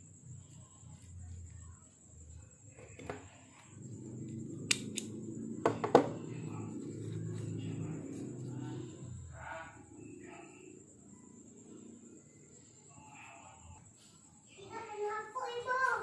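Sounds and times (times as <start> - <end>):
stapler clicks: 4.7 - 5.1.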